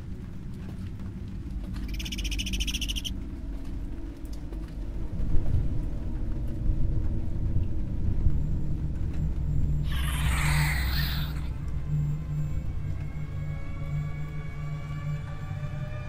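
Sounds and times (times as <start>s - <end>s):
low rumbling drone: 1.3s - 16.0s
high pulsing chirp: 1.8s - 3.1s, 9.8s - 11.6s.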